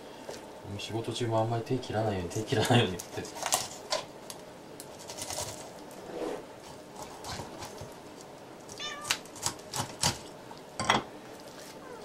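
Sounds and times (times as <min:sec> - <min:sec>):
cat meowing: 0:08.8 - 0:09.2, 0:11.8 - 0:12.0.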